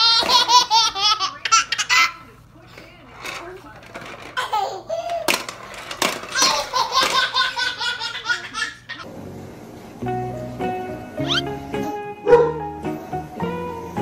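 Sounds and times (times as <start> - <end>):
toddler laughing: 0.0 - 2.2, 4.4 - 5.3, 6.3 - 9.1, 11.2 - 11.5
background music with held notes: 9.1 - 14.0.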